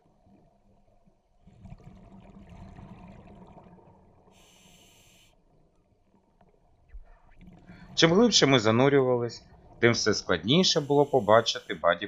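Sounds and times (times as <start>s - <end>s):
regulator inhalation hiss: 4.4s - 5.3s, 10.7s - 11.8s.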